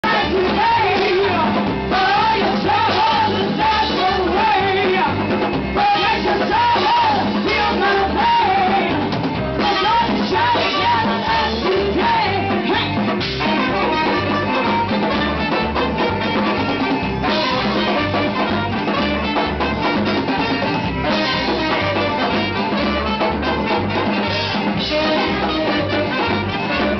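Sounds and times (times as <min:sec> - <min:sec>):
woman singing: 0:00.0 - 0:14.3
accordion: 0:00.0 - 0:26.9
drum kit beat: 0:00.0 - 0:26.9
guitar: 0:00.0 - 0:26.9
saxophone: 0:00.0 - 0:26.9.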